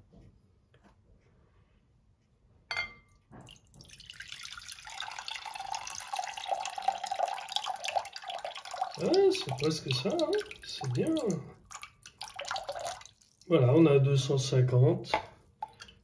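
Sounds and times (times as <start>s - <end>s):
liquid pouring into a glass bowl: 3.4s - 13.5s, 15.2s - 16.0s.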